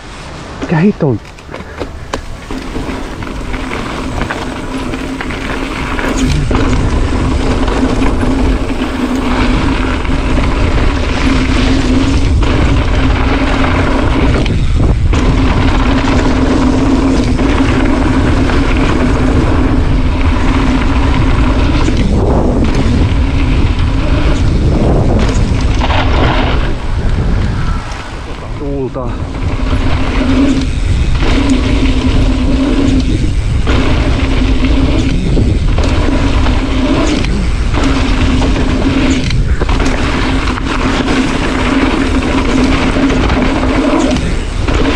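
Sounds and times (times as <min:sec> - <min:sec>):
mountain bike tyres on dirt trail: 0:00.0 - 0:44.9
wind buffeting microphone: 0:00.0 - 0:44.9.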